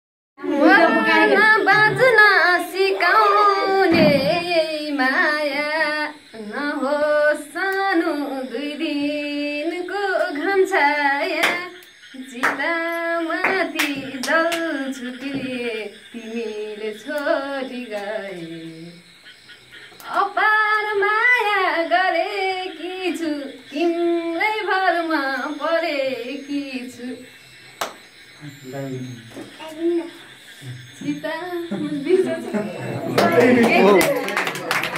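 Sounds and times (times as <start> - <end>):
woman singing unaccompanied: 0.4 - 19.1, 20.0 - 27.4
hand claps: 11.4 - 11.7, 12.4 - 12.7, 13.4 - 14.7, 27.8 - 28.0, 33.1 - 34.9.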